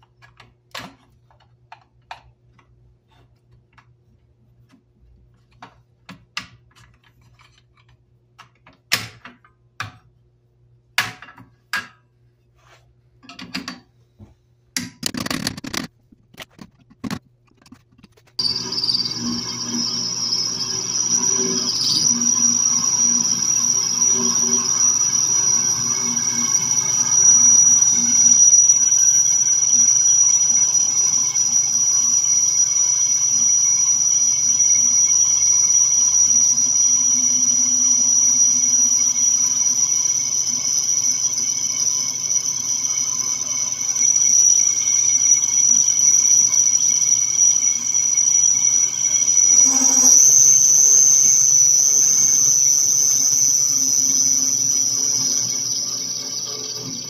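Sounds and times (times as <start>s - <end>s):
metal lathe high whine: 18.4s - 57.0s.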